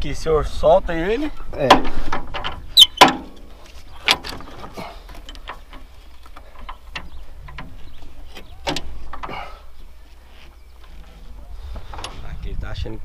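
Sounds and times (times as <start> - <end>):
metal clicks and knocks: 1.6 - 9.4.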